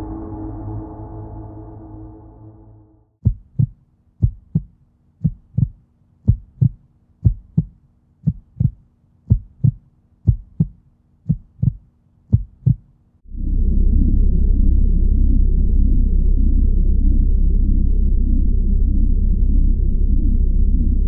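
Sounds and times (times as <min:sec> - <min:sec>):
heartbeat thumps: 0:03.2 - 0:12.9.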